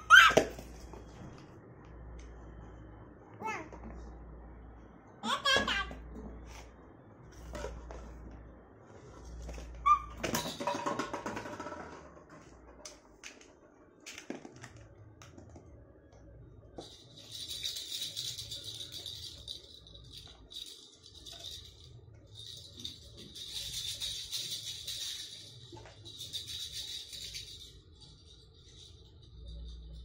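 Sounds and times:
plastic toys clattering: 0:09.2 - 0:15.5, 0:16.8 - 0:30.0
plastic toys clicking and knocking: 0:16.8 - 0:29.9.

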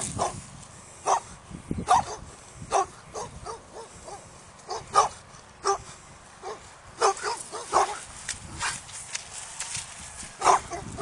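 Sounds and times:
dogs barking: 0:00.1 - 0:00.4, 0:01.0 - 0:08.1, 0:10.4 - 0:11.0.

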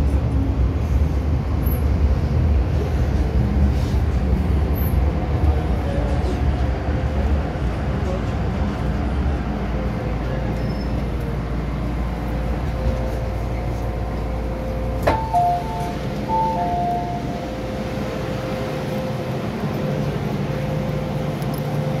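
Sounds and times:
station platform hum and rumble: 0:00.0 - 0:22.0
two-note high-low door chime: 0:15.0 - 0:17.5.

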